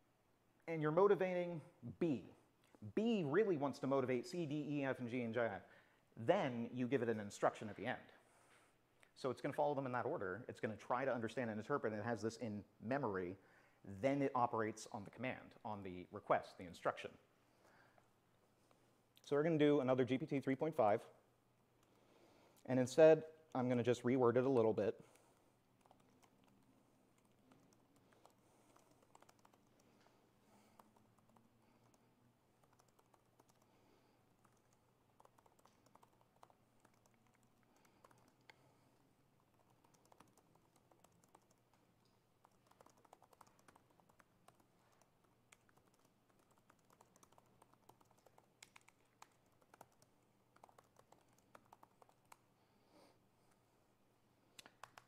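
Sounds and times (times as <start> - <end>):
typing on laptop keyboard: 25.3 - 38.6, 39.4 - 52.5, 54.6 - 55.0.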